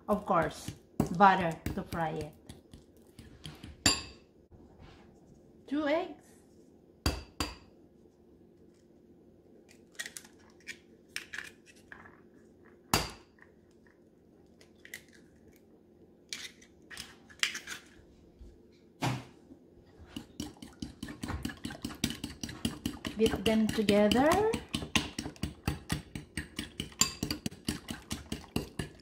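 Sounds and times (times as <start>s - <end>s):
fork beating eggs in bowl: 0.1s - 4.1s, 20.0s - 29.0s.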